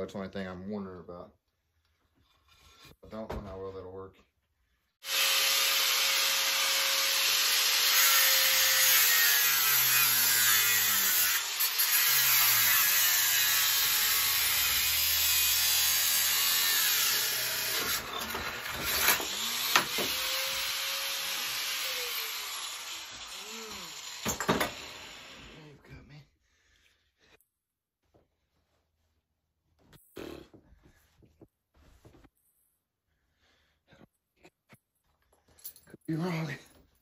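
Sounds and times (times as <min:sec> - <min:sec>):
angle grinder cutting steel: 0:05.0 - 0:25.7.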